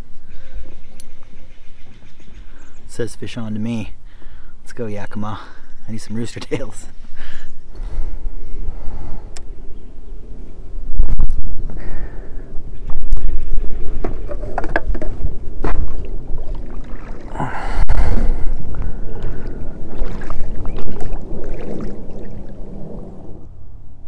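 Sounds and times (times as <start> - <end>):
steady low rumble: 5.6 - 24.0
oar blades splashing water: 13.0 - 17.4, 18.8 - 22.8
oars knocking on frame: 14.0 - 16.0.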